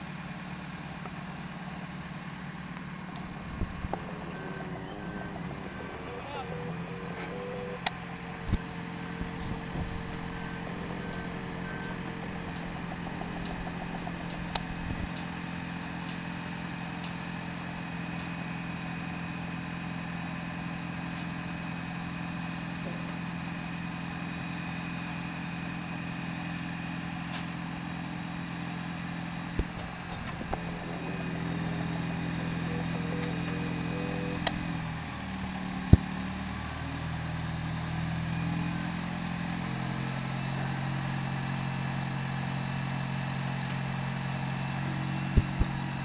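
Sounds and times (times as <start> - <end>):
diesel machinery drone: 0.0 - 46.0
reversing alarm beeping: 3.3 - 17.0, 30.4 - 35.7.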